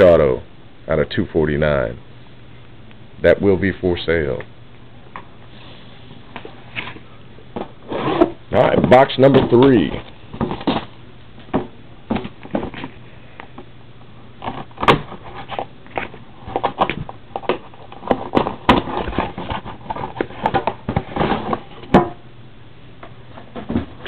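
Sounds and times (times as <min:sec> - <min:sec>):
cardboard scraping: 0:07.6 - 0:13.0, 0:14.4 - 0:22.0.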